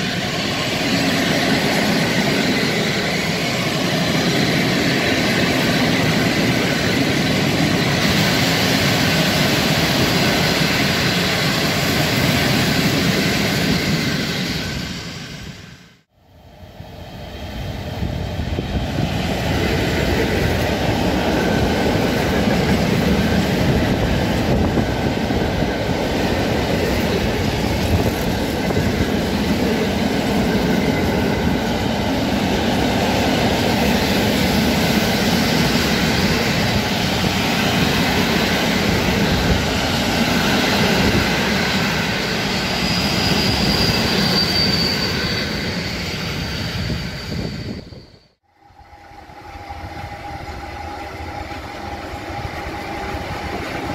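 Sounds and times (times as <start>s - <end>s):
train wheels rumbling on rail: 0.0s - 53.9s
thin high squeal: 42.4s - 51.8s.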